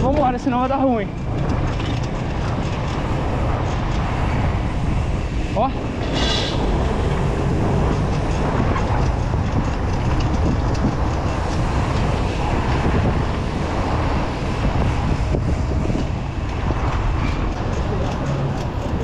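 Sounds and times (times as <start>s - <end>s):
bicycle rolling along street: 0.0s - 19.0s
wind buffeting microphone: 0.0s - 19.0s.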